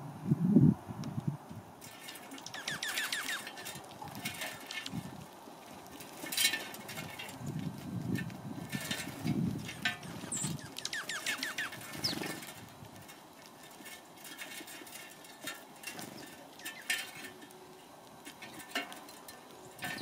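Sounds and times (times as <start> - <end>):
birds pecking on metal tray: 1.8 - 20.0
sparrows chirping: 2.3 - 3.7, 9.7 - 12.5, 16.0 - 17.0.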